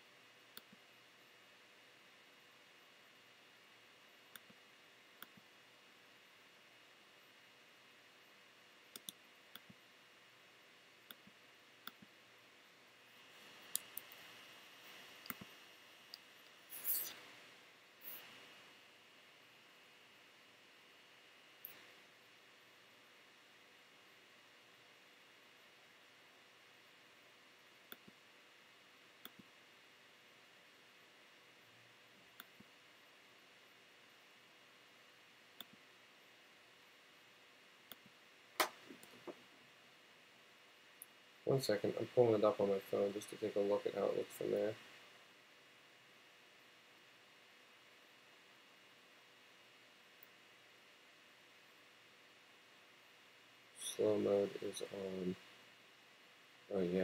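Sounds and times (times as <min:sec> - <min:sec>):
faint hiss: 0:00.0 - 0:57.0
computer mouse clicking: 0:00.5 - 0:00.8, 0:04.3 - 0:04.6, 0:08.9 - 0:09.8, 0:11.1 - 0:12.1, 0:15.2 - 0:15.5, 0:29.2 - 0:29.5.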